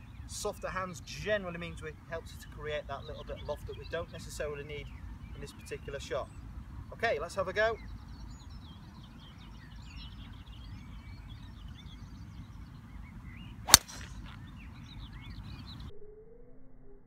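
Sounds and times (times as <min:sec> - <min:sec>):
birdsong: 0:00.0 - 0:15.9
golf club striking ball: 0:13.7 - 0:14.4.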